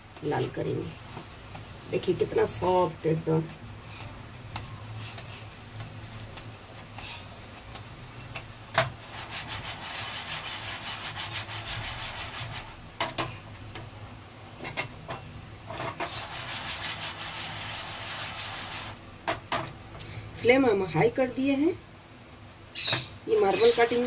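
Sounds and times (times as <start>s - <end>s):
frying pan scraping on grate: 8.2s - 13.4s, 14.6s - 19.0s, 22.9s - 24.0s.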